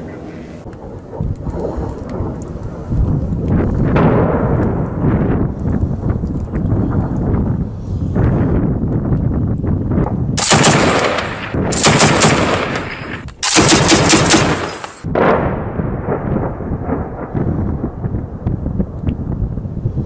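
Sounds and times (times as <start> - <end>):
low rumble: 0.0 - 14.4, 15.0 - 20.0
machine gun automatic fire: 10.4 - 15.1.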